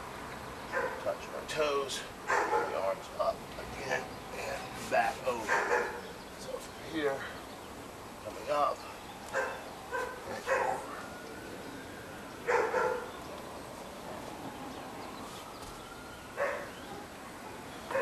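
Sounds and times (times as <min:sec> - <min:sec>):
dog barking: 0:00.7 - 0:01.1, 0:02.3 - 0:02.9, 0:05.4 - 0:06.0, 0:09.3 - 0:10.9, 0:12.5 - 0:13.1, 0:16.4 - 0:16.8.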